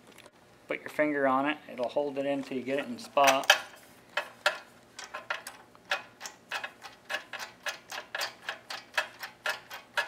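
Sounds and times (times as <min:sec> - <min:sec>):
ratchet clicking: 0:03.3 - 0:10.0.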